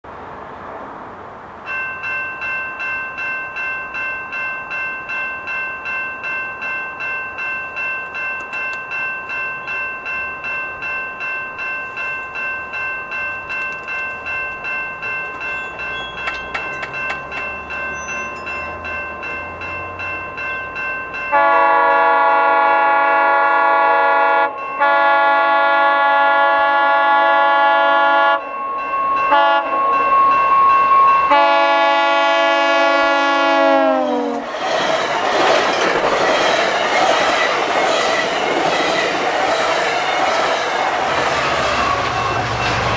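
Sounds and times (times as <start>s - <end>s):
level crossing warning bell: 1.6s - 34.1s
train horn blasts: 21.3s - 28.6s, 29.3s - 30.3s, 31.0s - 34.4s.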